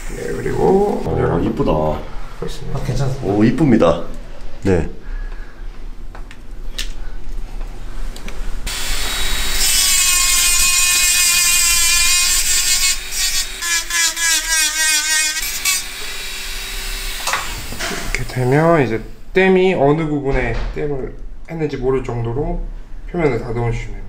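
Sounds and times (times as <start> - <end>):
rotary tool high whine: 8.7 - 18.8.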